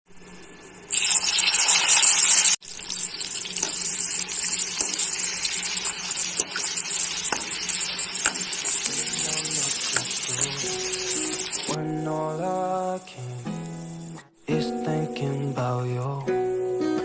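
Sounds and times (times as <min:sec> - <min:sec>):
onions sizzling in hot oil: 0:00.2 - 0:11.8, 0:13.4 - 0:14.1
metal spoon clicking on pan: 0:07.3 - 0:08.6.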